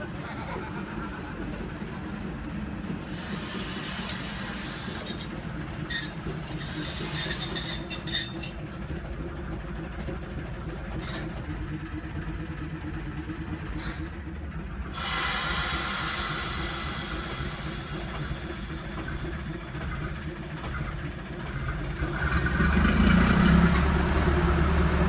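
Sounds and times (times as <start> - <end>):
diesel locomotive engine running: 0.0 - 25.0
hiss: 3.0 - 5.1, 15.0 - 19.2
high wheel squeal: 3.1 - 9.8
wheels clicking over rail joints: 4.9 - 11.6.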